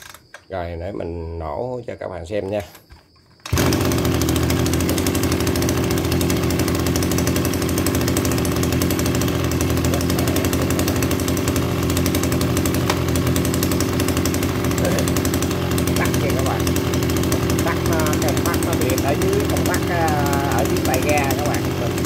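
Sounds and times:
recoil starter pull: 0.0 - 0.5, 2.6 - 22.0
brush cutter engine idling: 3.4 - 22.0.

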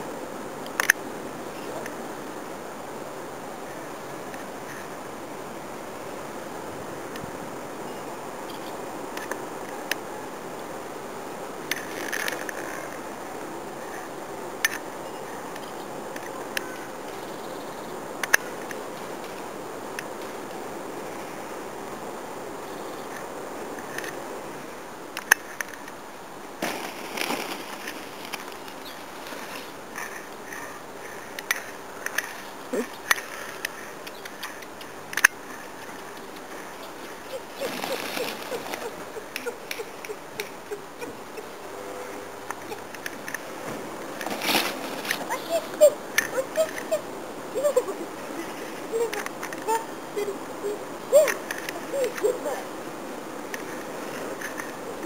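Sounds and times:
steady outdoor hiss: 0.0 - 55.0
puppy whining: 37.2 - 41.5.

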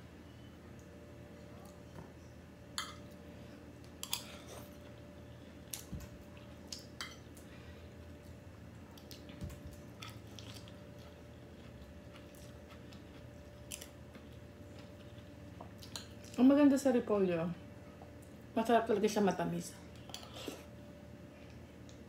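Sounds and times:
faint steady hum: 0.0 - 22.0
person chewing: 8.2 - 16.4.

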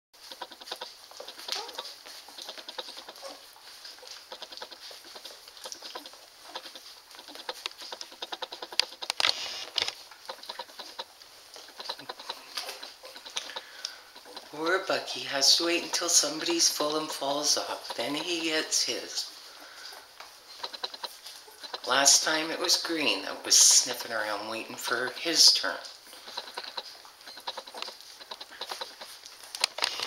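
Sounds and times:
puppies suckling wet smacking: 0.2 - 30.0
puppy squeaks: 0.6 - 3.5, 26.1 - 29.1.

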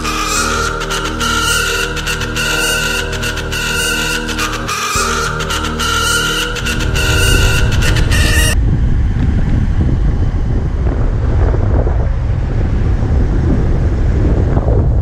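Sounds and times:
background music: 0.0 - 8.6
wind buffeting microphone: 6.5 - 15.0.

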